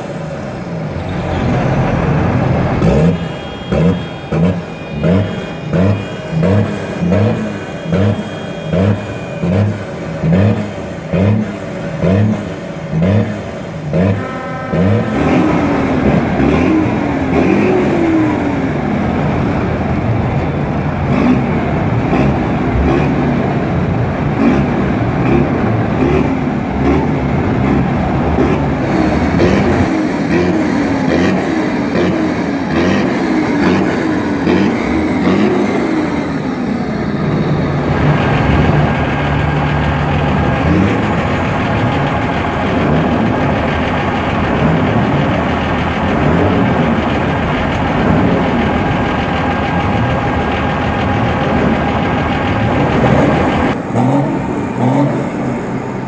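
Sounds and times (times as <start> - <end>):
steady low drone: 0.0 - 56.0
tractor engines revving: 0.0 - 56.0.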